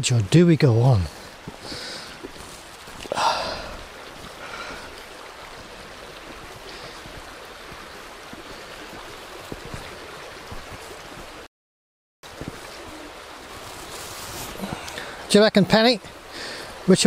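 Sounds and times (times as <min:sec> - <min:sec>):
small river flowing: 0:00.0 - 0:11.5, 0:12.2 - 0:17.0
breathy sound: 0:01.6 - 0:02.2, 0:03.0 - 0:05.0.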